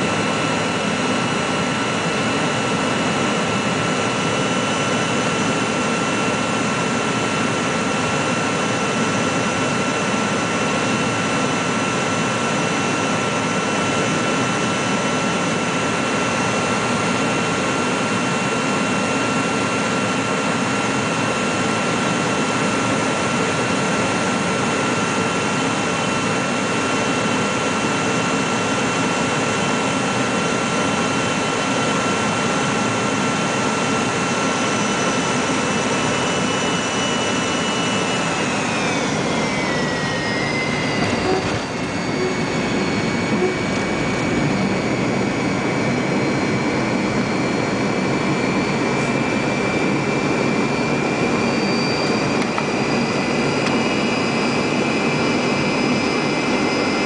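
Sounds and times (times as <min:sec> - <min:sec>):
aircraft cabin engine rush: 0:00.0 - 0:57.0
thin high whining tones: 0:40.3 - 0:44.8.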